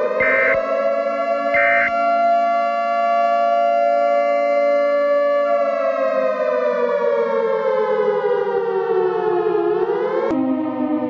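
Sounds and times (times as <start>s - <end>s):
siren wailing: 0.0s - 11.0s.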